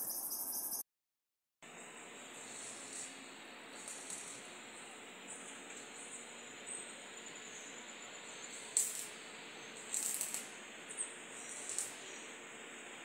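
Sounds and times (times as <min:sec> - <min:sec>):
high insect drone: 0:01.8 - 0:13.0.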